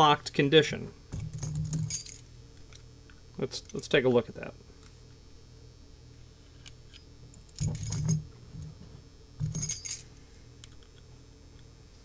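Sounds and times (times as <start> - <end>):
metal keys jingling: 1.2 - 2.2, 7.4 - 8.3, 9.4 - 10.1.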